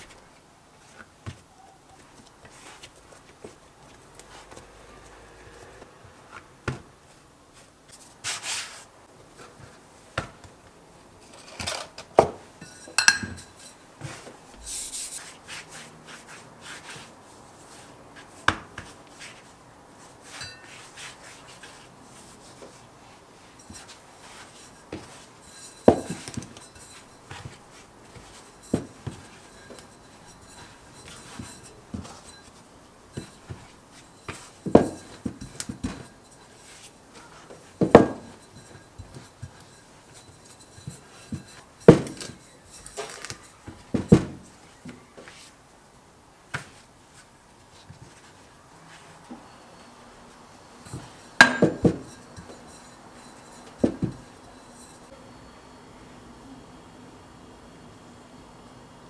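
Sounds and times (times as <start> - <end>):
hands rubbing dough: 0.0 - 5.2, 6.3 - 10.7, 12.4 - 45.6
rolling pin rolling over dough: 12.1 - 45.6, 50.7 - 55.1.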